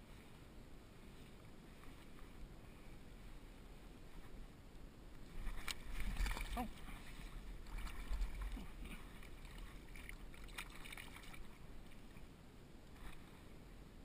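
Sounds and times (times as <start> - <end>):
water splashing and sloshing: 5.1 - 13.6.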